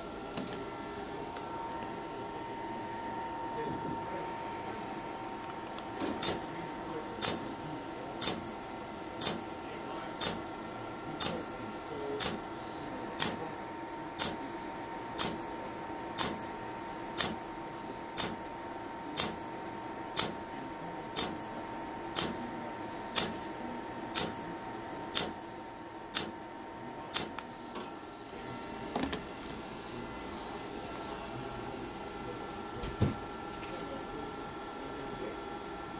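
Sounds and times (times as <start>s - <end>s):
steady high machine tone: 0.0s - 5.5s.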